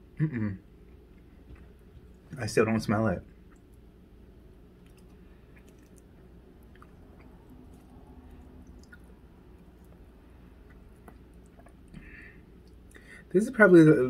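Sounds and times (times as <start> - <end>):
faint chewing: 0.8 - 2.4, 3.3 - 3.9, 4.6 - 13.1
wet mouth clicks: 4.8 - 10.0, 10.6 - 12.0.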